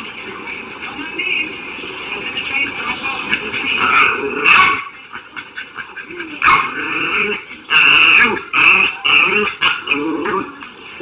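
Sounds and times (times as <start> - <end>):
dog vocalizing: 3.7 - 10.7.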